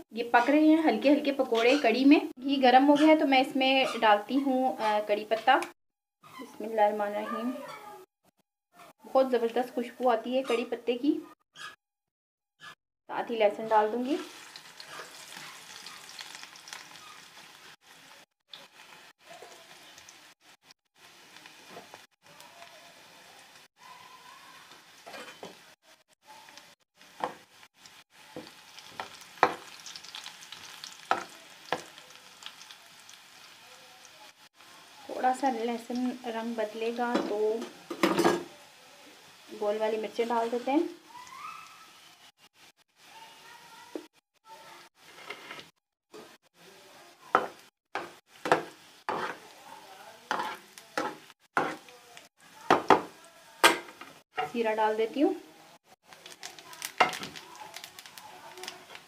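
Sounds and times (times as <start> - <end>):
garlic sizzling in ghee: 0.0 - 5.8, 12.6 - 59.0
wooden spatula scraping metal pan: 2.8 - 5.6, 11.6 - 11.8, 45.0 - 46.4, 47.4 - 49.5, 50.3 - 51.9.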